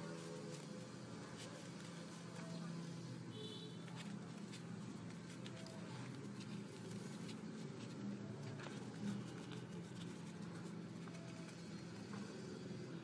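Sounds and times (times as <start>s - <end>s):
low steady background hum: 0.0s - 13.0s
paper rustling and crinkling: 3.8s - 12.2s.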